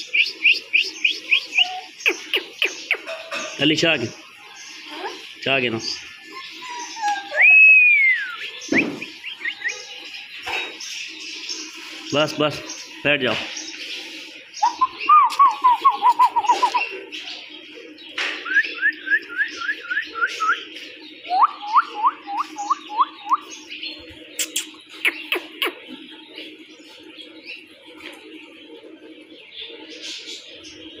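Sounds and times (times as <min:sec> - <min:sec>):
background bird chatter: 0:00.0 - 0:31.0
bird chirping: 0:00.0 - 0:31.0.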